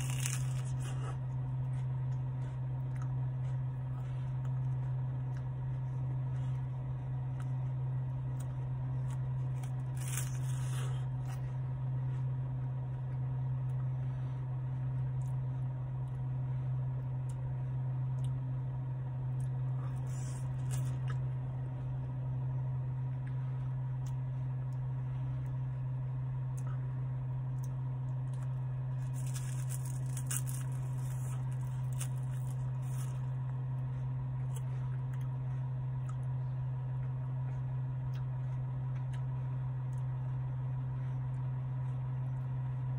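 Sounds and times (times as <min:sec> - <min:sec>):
crunching of wafer cone: 0:00.0 - 0:06.6, 0:08.3 - 0:11.5, 0:19.4 - 0:21.2, 0:27.5 - 0:33.8
biting ice cream: 0:00.0 - 0:06.7, 0:07.3 - 0:11.4, 0:27.6 - 0:36.4.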